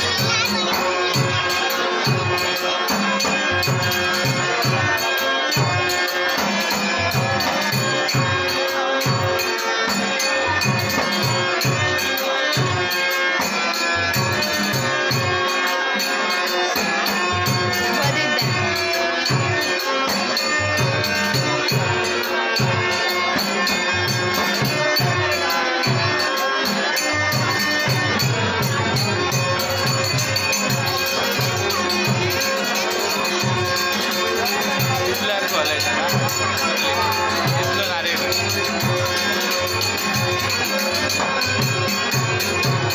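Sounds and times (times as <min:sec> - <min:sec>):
drum beating steady rhythm: 0:00.0 - 0:42.9
hand cymbals jingling: 0:00.0 - 0:42.9
harmonium sustained chords: 0:00.0 - 0:42.9.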